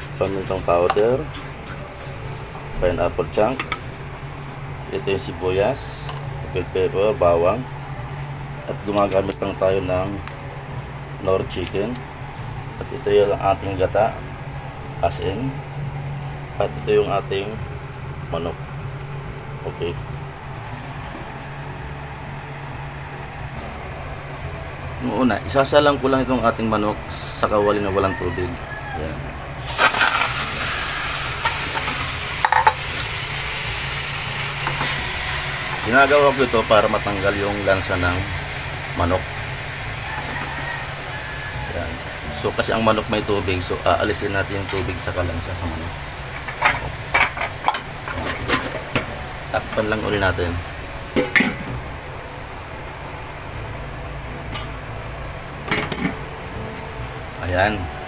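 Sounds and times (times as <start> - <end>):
steady low hum: 0.0 - 41.0, 41.7 - 58.0
chicken sizzling in a wok: 29.6 - 51.4.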